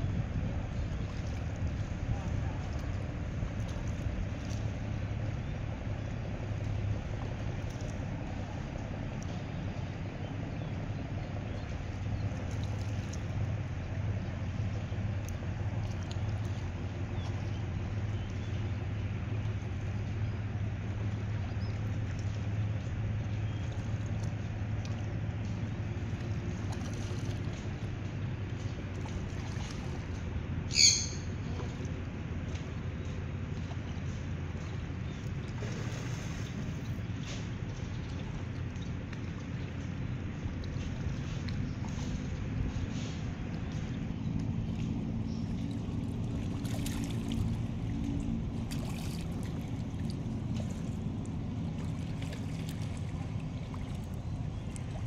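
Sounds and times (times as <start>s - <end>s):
ferry engine humming: 0.0s - 55.0s
river water lapping: 0.0s - 55.0s
loud water splashes: 35.4s - 36.9s.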